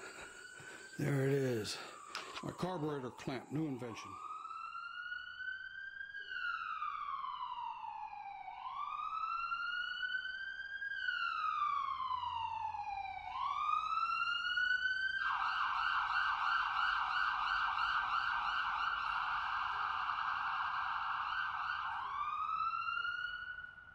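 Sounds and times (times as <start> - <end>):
siren fast warbling yelp: 0.0 - 4.6
siren wailing: 0.0 - 23.9.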